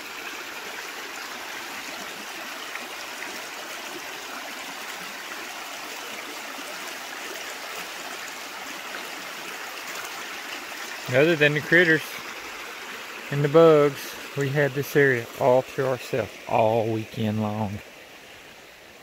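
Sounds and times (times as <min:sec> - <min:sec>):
creek running over gravel: 0:00.0 - 0:19.0.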